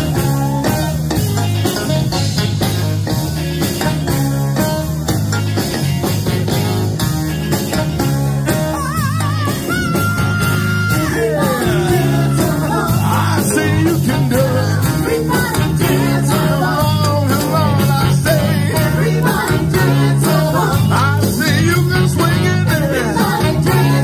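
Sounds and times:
live band playing: 0:00.0 - 0:24.0
person singing with vibrato: 0:08.6 - 0:24.0.

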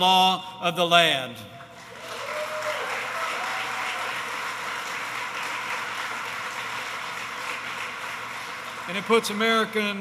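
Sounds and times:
cheers: 0:01.8 - 0:05.8
audience applauding: 0:01.8 - 0:10.0.

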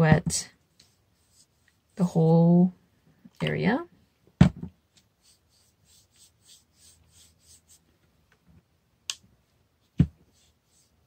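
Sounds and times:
paintbrush swishing on paper: 0:00.6 - 0:02.2, 0:05.0 - 0:07.9, 0:09.8 - 0:11.0.

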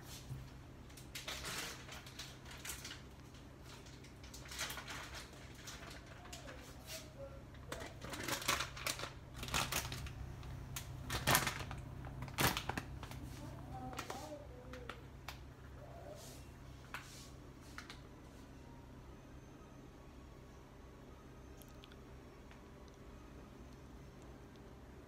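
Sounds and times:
plastic packet crinkling: 0:00.9 - 0:06.6, 0:07.5 - 0:15.1
steady low hum: 0:02.0 - 0:25.0.

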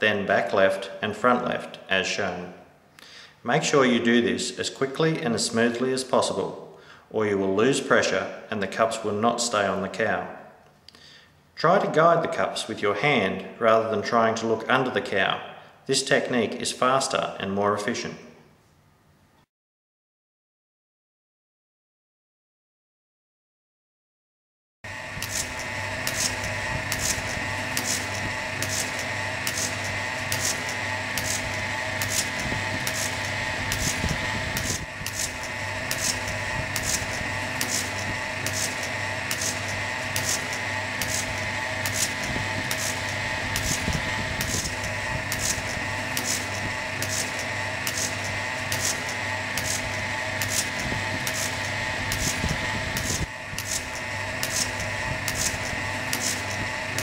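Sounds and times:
milking machine motor hum: 0:24.9 - 0:57.0
pulsator hissing and clicking: 0:25.0 - 0:57.0.

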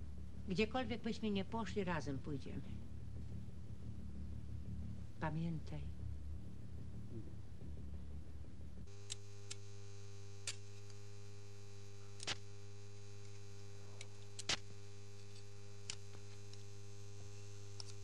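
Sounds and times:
electrical hum: 0:00.0 - 0:18.0
sharp spark cracks: 0:08.9 - 0:11.1, 0:11.8 - 0:12.6, 0:13.2 - 0:16.8.

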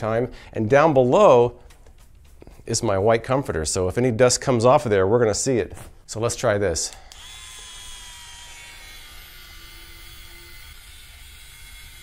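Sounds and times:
small motor spinning a brush: 0:07.0 - 0:12.0.

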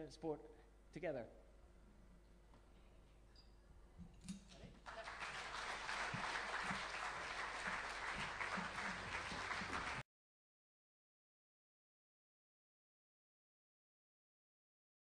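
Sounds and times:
audience applauding: 0:04.8 - 0:10.0.

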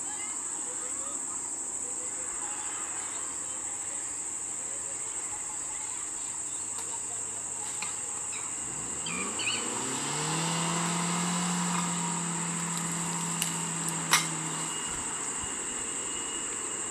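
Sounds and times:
insects buzzing: 0:00.0 - 0:16.9
car engine pulling away: 0:06.7 - 0:16.9.

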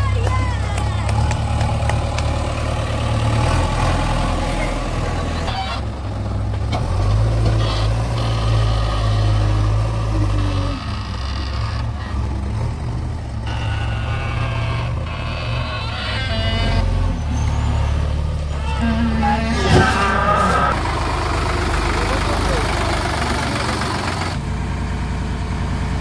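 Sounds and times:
backhoe diesel engine drone: 0:00.0 - 0:26.0.

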